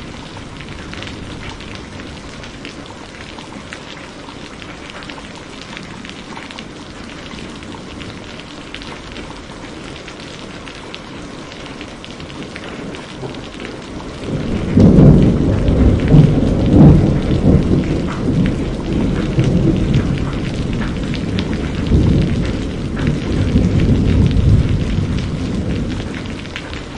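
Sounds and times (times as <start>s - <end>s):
thunder rumbling: 0.0s - 2.7s, 12.7s - 26.9s
heavy rain splashing: 0.0s - 26.9s.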